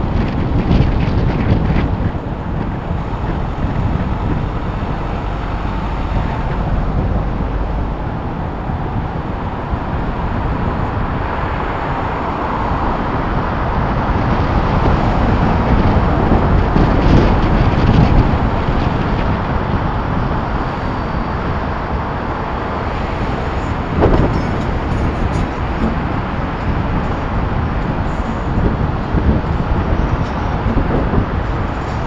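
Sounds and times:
road and traffic noise: 0.0s - 32.0s
wind rushing over microphone: 0.0s - 32.0s.

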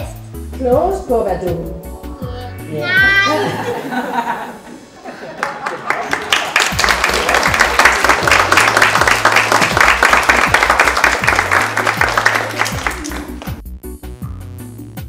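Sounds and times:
audience applauding: 5.2s - 13.6s
music with bass-drum beat: 7.0s - 15.0s.

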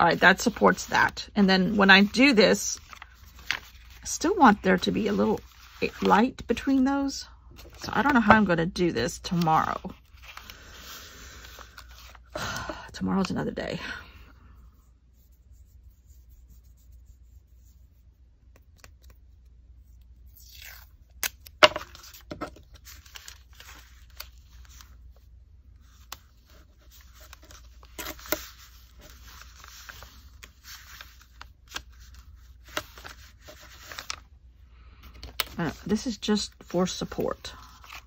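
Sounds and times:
paper rustling and scraping: 0.0s - 6.3s, 21.7s - 34.2s, 35.1s - 38.0s
tape tearing: 20.3s - 22.2s.

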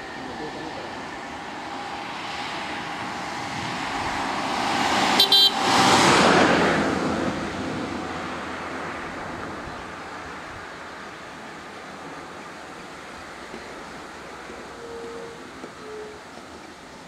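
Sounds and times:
car passing by: 0.0s - 16.9s
car horn toots: 5.1s - 5.8s.

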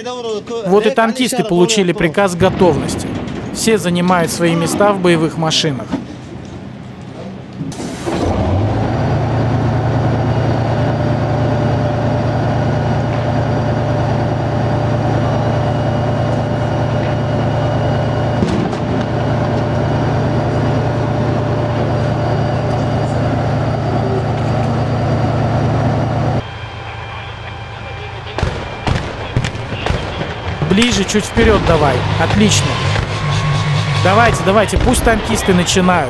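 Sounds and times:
diesel engine idling: 4.4s - 36.0s
thin steady whine: 9.0s - 36.0s.

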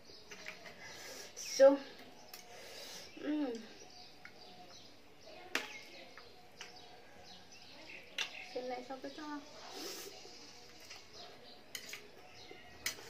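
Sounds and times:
cutlery clicking against plate: 11.7s - 12.1s, 12.8s - 13.0s.

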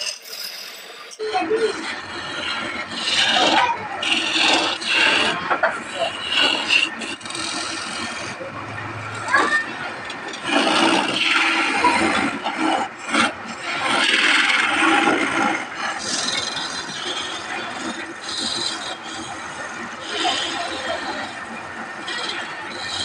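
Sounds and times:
chisel cutting wood on a lathe: 0.0s - 23.0s.

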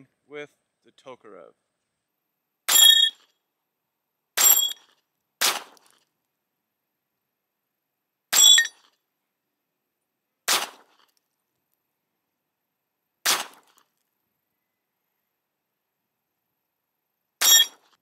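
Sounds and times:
pistol shots with metallic ring: 2.7s - 3.2s, 4.4s - 4.9s.

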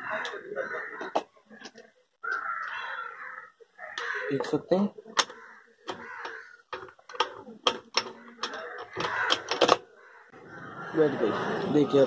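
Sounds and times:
gears clicking against metal casing: 5.2s - 9.8s.

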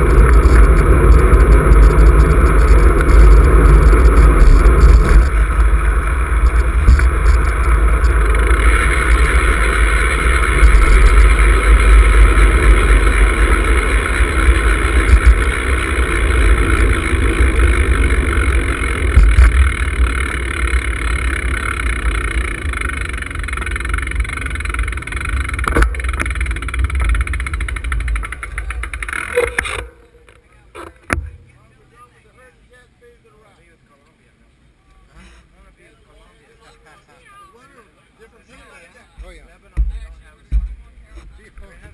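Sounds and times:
wind rushing over microphone: 0.0s - 21.2s.

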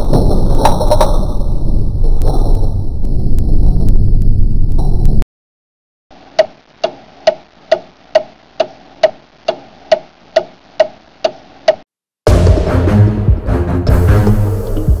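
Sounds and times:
clock ticking: 6.3s - 11.8s.

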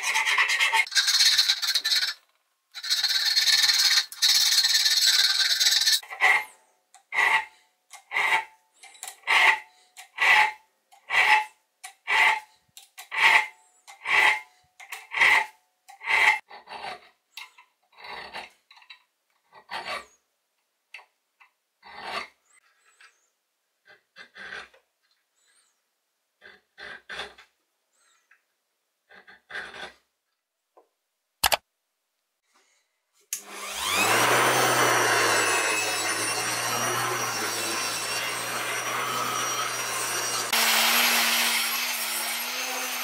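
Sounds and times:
file scraping metal wrench: 0.0s - 20.2s, 21.8s - 24.8s, 26.4s - 28.4s, 29.1s - 30.0s, 33.6s - 40.6s.

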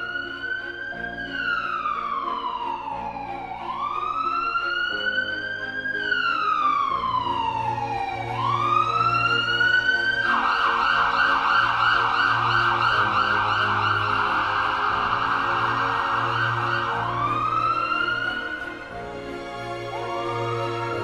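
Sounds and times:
low background music: 0.0s - 21.0s
electronic siren wailing and yelping: 10.1s - 18.7s.

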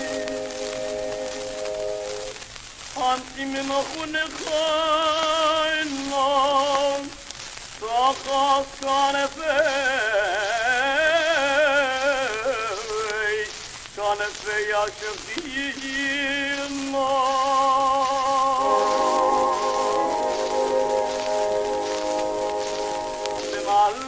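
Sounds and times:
held steady chord: 0.0s - 2.4s, 18.6s - 24.0s
steady hiss: 0.0s - 24.0s.

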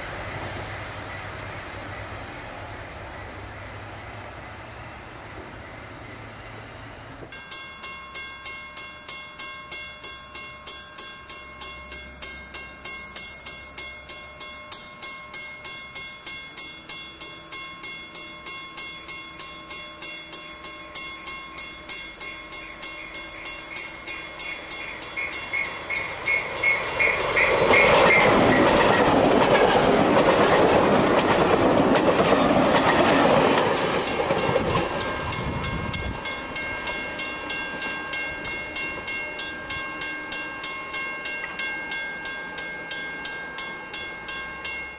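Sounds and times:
train passing: 0.0s - 44.9s
bell ringing: 7.4s - 29.2s, 34.0s - 44.9s.

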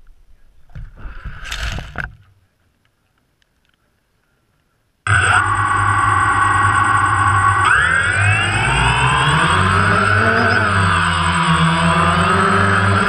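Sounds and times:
loud steady multi-pitched tone: 5.1s - 13.0s.

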